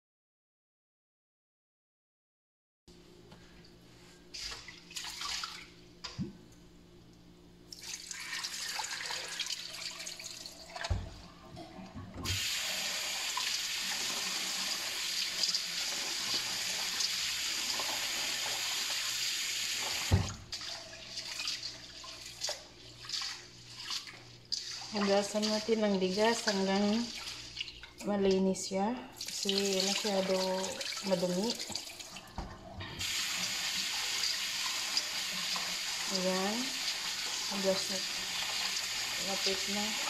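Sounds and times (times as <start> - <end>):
splashing while rinsing meat: 4.3 - 5.8, 7.7 - 11.3, 12.2 - 28.1, 29.2 - 40.0.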